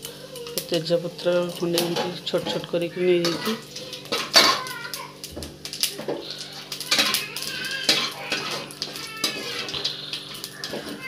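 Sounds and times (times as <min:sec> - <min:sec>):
spices sizzling in oil: 0:00.0 - 0:11.0
spoon scraping a wok: 0:01.6 - 0:04.6, 0:06.1 - 0:11.0.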